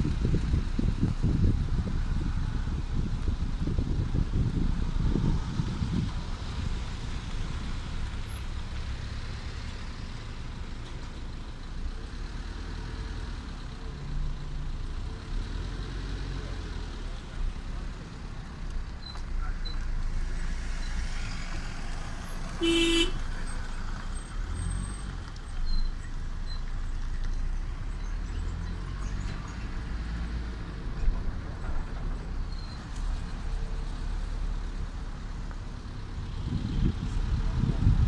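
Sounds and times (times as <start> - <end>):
road traffic rumble: 0.0 - 38.0
vehicle horn toot: 22.6 - 23.2.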